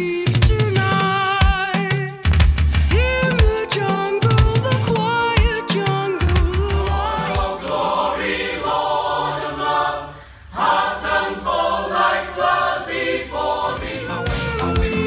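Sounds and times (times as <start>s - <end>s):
mixed choir singing: 6.7s - 15.0s.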